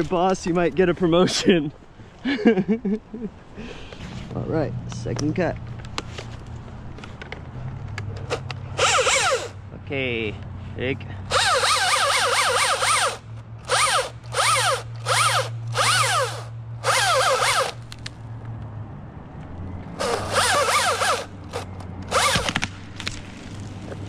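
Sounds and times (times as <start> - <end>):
electric chainsaw cutting wood: 8.3 - 9.6, 11.3 - 17.8, 20.0 - 22.7.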